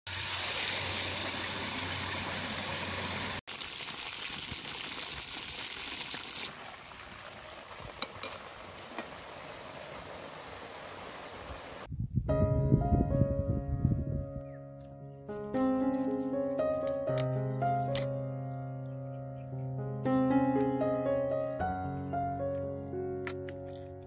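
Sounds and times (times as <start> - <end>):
chicken deep-frying in oil: 0.1 - 11.9.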